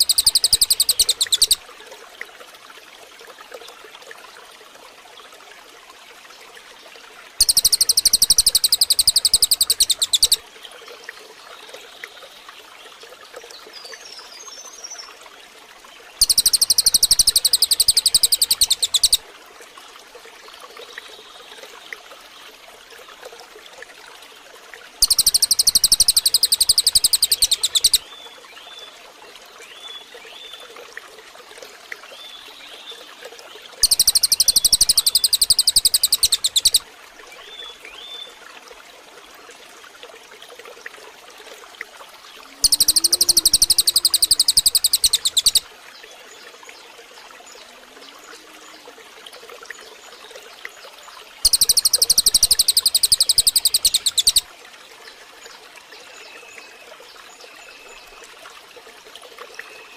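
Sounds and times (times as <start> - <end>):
faint chirps: 0.0 - 1.6, 16.2 - 19.2, 25.0 - 28.0, 33.8 - 36.8, 42.5 - 45.6, 51.4 - 54.4
songbird high-pitched trill: 0.0 - 1.6, 7.4 - 10.4, 16.2 - 19.2, 25.0 - 28.0, 33.8 - 36.8, 42.6 - 45.6, 51.4 - 54.4
running water: 0.0 - 59.9.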